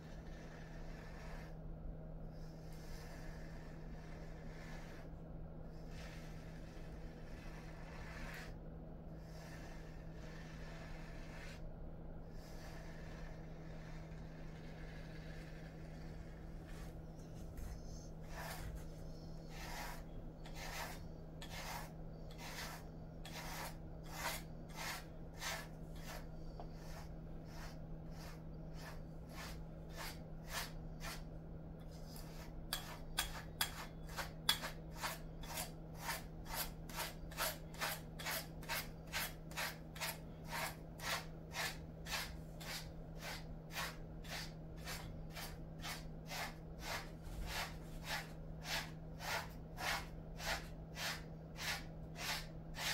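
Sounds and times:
steady low hum: 0.0s - 52.9s
brush rasping through dog fur: 5.8s - 8.6s, 12.4s - 52.9s.

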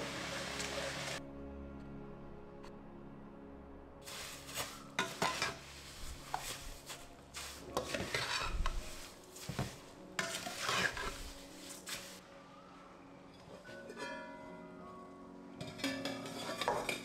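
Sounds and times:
utensil scraping a pot: 4.1s - 12.0s, 15.8s - 17.0s.

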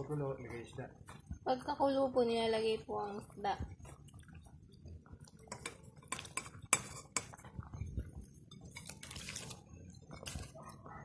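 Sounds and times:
utensils clinking on metal pot: 5.4s - 7.8s.

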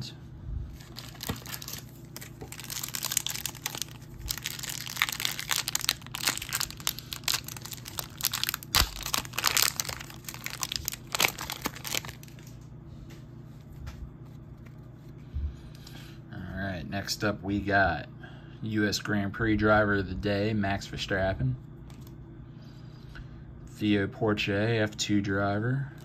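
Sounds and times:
packaging crinkling: 0.8s - 12.6s.

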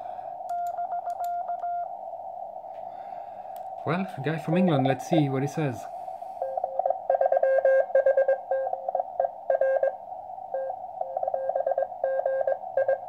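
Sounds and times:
radio band noise hiss: 3.7s - 7.1s
morse code tone: 6.4s - 13.0s.

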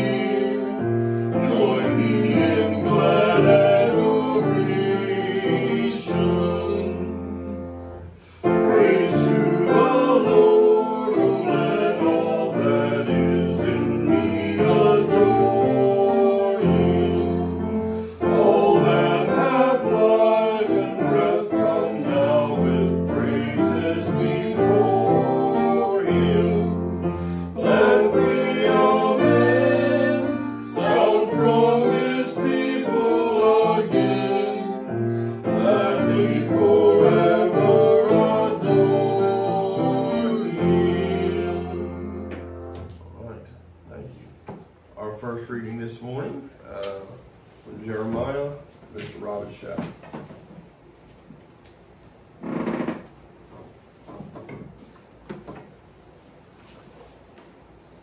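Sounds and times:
congregation singing a hymn: 0.0s - 43.3s
instrumental accompaniment: 0.0s - 43.8s.

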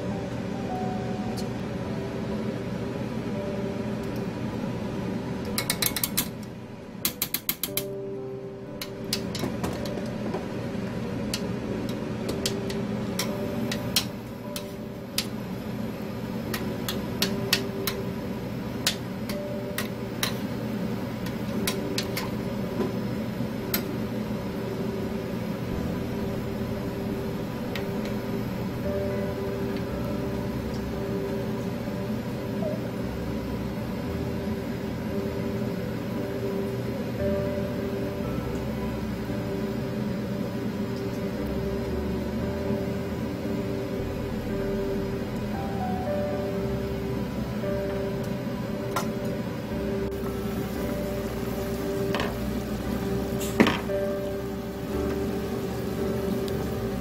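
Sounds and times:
steady hum: 0.0s - 57.0s
tongs and spoon clicking on pan: 5.5s - 6.3s, 7.0s - 7.9s, 18.8s - 20.4s.

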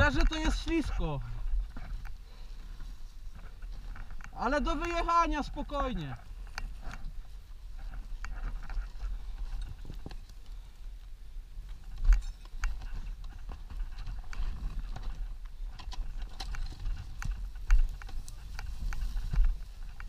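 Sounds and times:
dirt bike scuffing over gravel: 16.6s - 20.0s.

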